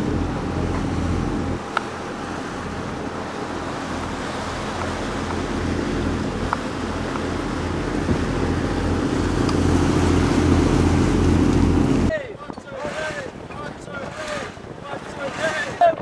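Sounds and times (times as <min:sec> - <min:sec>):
boat motor drone: 0:00.0 - 0:16.0
rushing water: 0:00.0 - 0:16.0
wind noise on microphone: 0:03.8 - 0:16.0.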